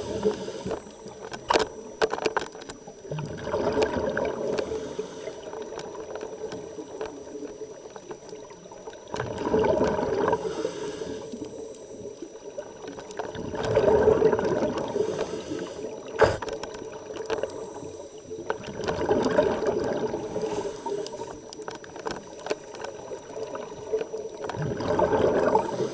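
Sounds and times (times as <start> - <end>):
regulator hiss: 0.0 - 1.1, 4.4 - 5.6, 10.3 - 11.6, 14.8 - 16.5, 20.1 - 21.4
exhaled bubbles underwater: 2.8 - 25.9.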